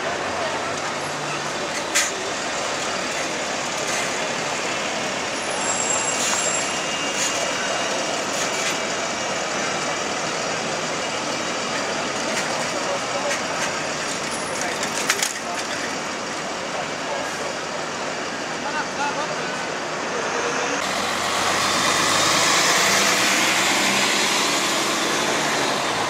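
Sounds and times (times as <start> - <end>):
street traffic: 0.0 - 26.0
bus engine driving past: 16.2 - 26.0.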